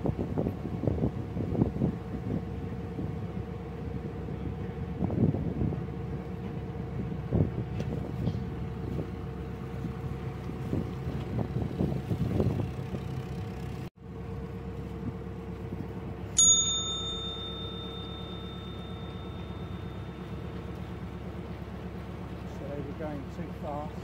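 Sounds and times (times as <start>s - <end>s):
wind on microphone: 0.0s - 13.1s
diesel engine running: 0.0s - 24.0s
bell-like notification ding: 16.4s - 20.6s.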